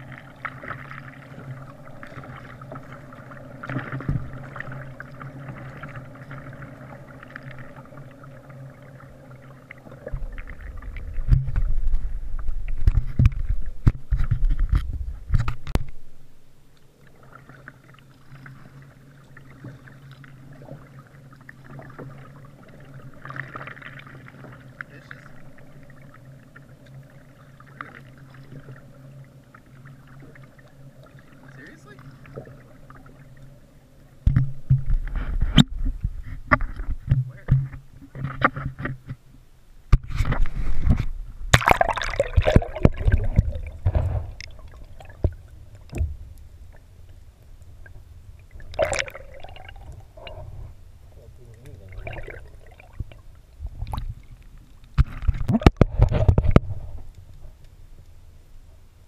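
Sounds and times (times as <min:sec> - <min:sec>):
water lapping: 0:00.0 - 0:16.0, 0:16.8 - 0:39.2, 0:40.2 - 0:57.7
paddle strokes: 0:00.0 - 0:39.3
low hum: 0:00.0 - 0:59.0
low rumbling with knocks: 0:10.1 - 0:16.0, 0:42.4 - 0:46.7.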